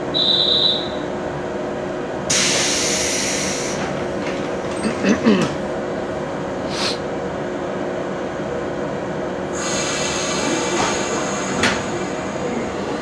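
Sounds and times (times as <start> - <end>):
electric train equipment hum: 0.0 - 13.0.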